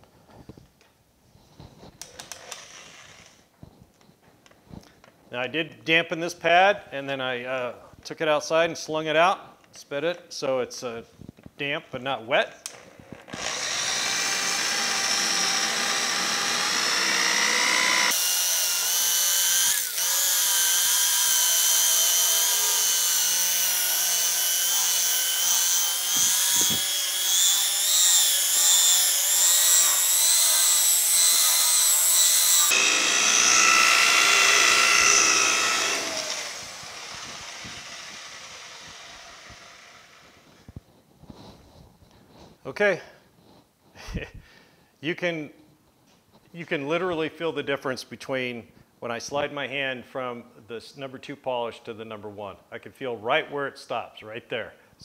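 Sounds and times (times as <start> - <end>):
electric polisher motor whine: 13.3 - 40.6.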